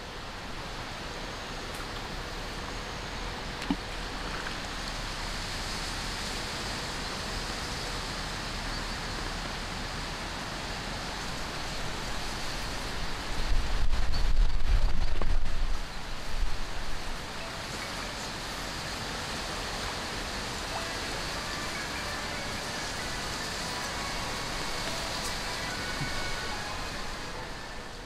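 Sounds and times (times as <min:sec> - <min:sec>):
wind: 0:00.0 - 0:28.0
wind gust buffeting microphone: 0:11.8 - 0:17.4.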